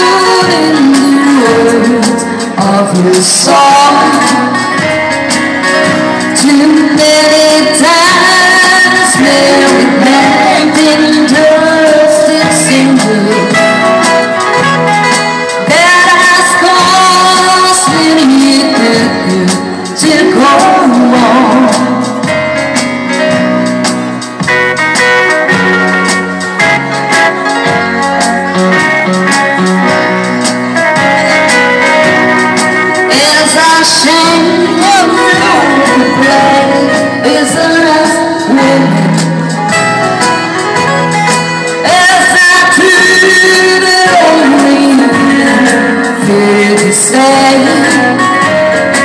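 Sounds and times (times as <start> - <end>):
woman singing into microphone: 0.0 - 23.4, 30.9 - 49.0
electronic keyboard accompaniment: 0.0 - 49.0.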